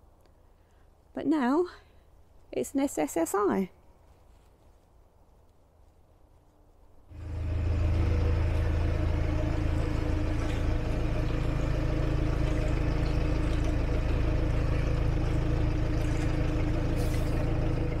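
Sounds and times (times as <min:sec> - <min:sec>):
engine humming: 0:07.1 - 0:18.0.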